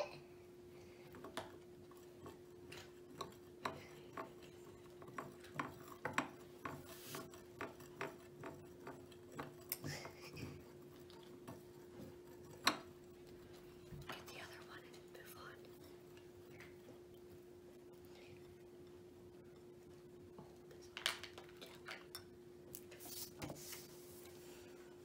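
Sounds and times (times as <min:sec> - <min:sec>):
faint steady hum: 0:00.0 - 0:25.0
stirrer clicking against ceramic bowl: 0:01.1 - 0:14.2.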